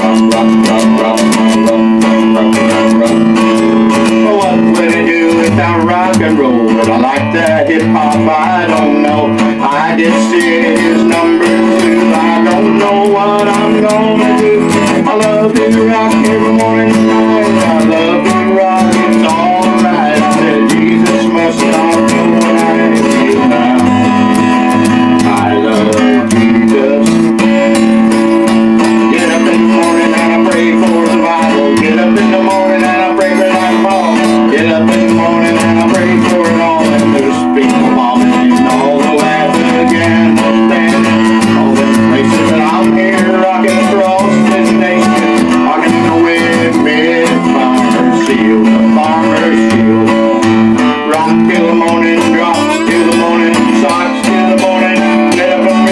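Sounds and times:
acoustic guitar chords: 0.0 - 55.9.

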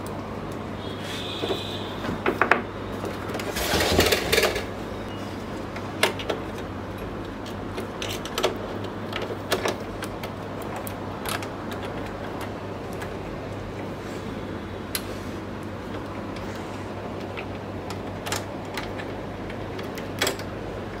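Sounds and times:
rustling scrape: 3.4 - 4.6.

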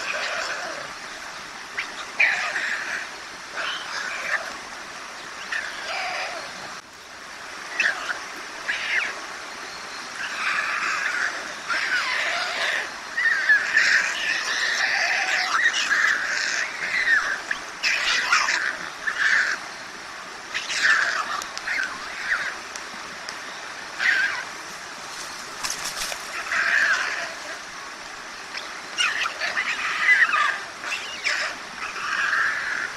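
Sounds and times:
young storks begging calls: 20.5 - 22.6, 23.8 - 27.8.

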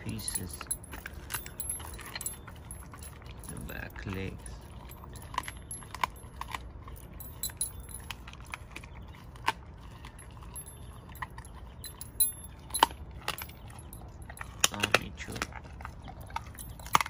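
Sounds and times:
metal collar and tag jingling: 0.0 - 9.2, 9.8 - 17.0
dog chewing bones: 0.0 - 17.0
sharp clicks and crunches: 14.4 - 15.7.

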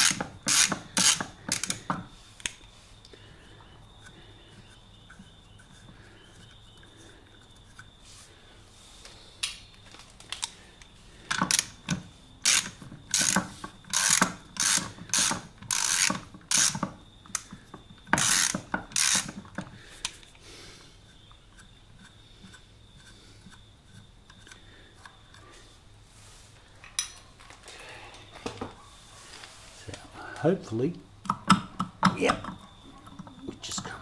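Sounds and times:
socket ratchet clicking: 0.0 - 2.6, 11.3 - 17.6, 18.2 - 19.6.

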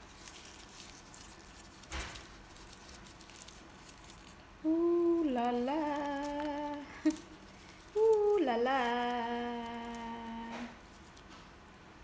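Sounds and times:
leaf rustling and crackling: 0.0 - 12.0
woman humming: 4.6 - 7.2, 7.9 - 10.8.

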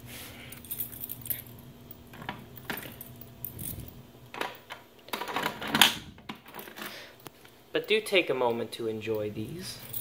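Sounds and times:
keys jangling: 0.4 - 4.0, 6.4 - 10.0.

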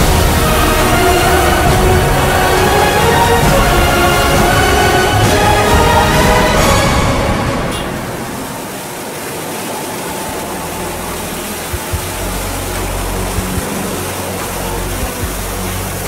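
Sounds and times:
low engine drone: 0.0 - 8.9
street sweeper brush and water hiss: 0.0 - 16.0.

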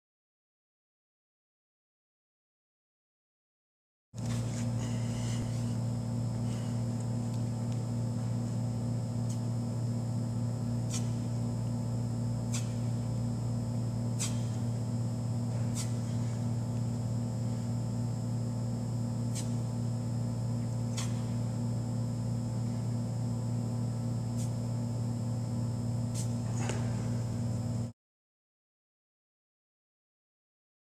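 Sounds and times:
electrical mains hum: 4.2 - 28.0.

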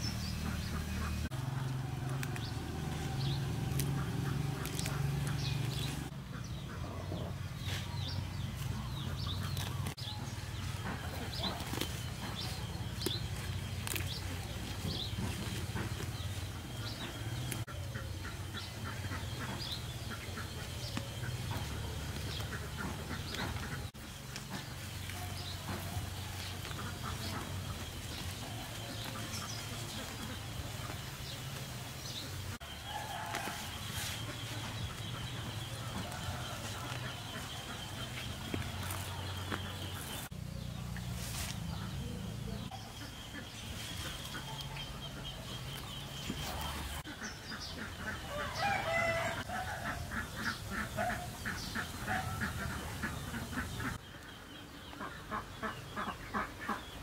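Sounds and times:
birds chirping: 0.0 - 57.0
chickens clucking: 0.0 - 57.0.

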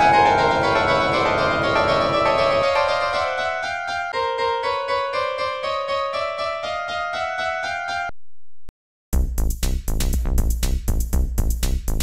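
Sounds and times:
railroad crossing bell dinging: 0.0 - 4.1.

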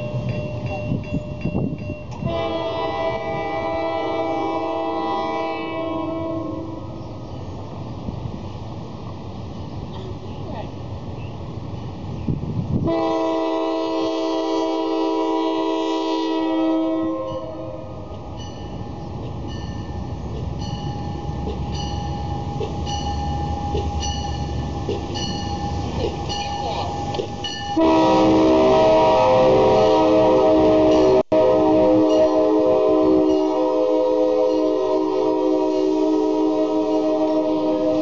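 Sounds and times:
crossing bell ringing: 0.0 - 2.6, 17.2 - 29.0, 30.8 - 31.2, 32.0 - 35.0, 35.6 - 37.5
train rumble: 0.0 - 38.0
train horn chord: 2.1 - 7.2, 12.8 - 18.0, 27.8 - 38.0.

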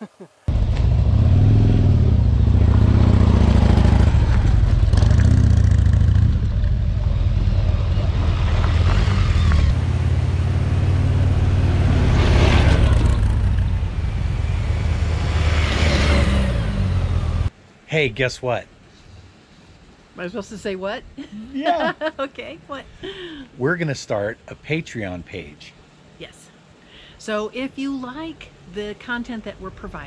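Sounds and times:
motorcycles passing slowly: 0.0 - 17.5.

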